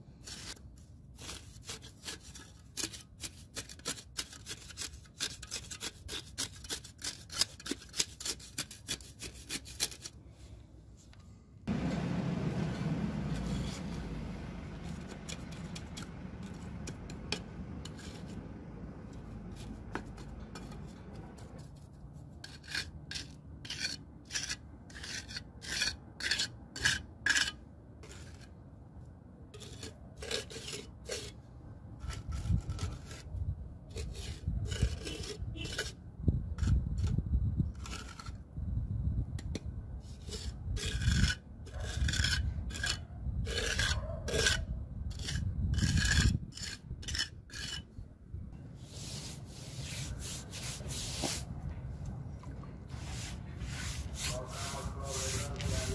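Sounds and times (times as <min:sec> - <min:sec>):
trowel scraping wet concrete: 0:00.1 - 0:10.2, 0:12.5 - 0:28.6, 0:29.5 - 0:31.4, 0:32.0 - 0:38.5, 0:40.0 - 0:48.0, 0:48.8 - 0:51.6, 0:52.8 - 0:55.9.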